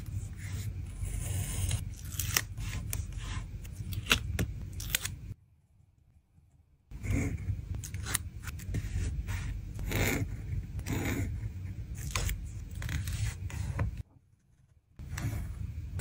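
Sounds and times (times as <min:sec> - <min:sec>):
pen scratching on paper: 0:08.7 - 0:11.4.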